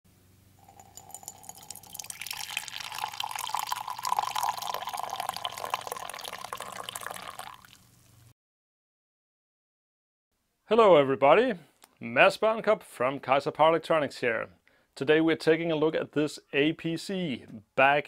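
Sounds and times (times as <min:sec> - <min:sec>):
coffee pouring into a mug: 0:00.6 - 0:08.0.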